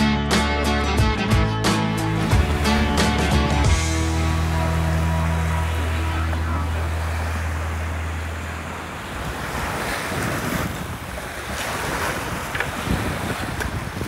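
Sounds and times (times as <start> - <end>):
background music: 0.0 - 8.7
water lapping around kayak: 1.9 - 14.0
wind buffeting microphone: 2.2 - 14.0.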